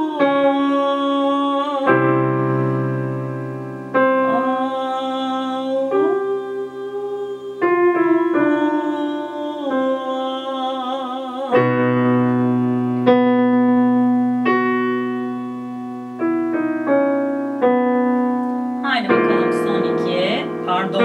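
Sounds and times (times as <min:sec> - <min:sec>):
woman singing held vowel: 0:00.0 - 0:02.3, 0:04.3 - 0:11.8, 0:18.8 - 0:21.0
digital piano chords: 0:00.0 - 0:21.0.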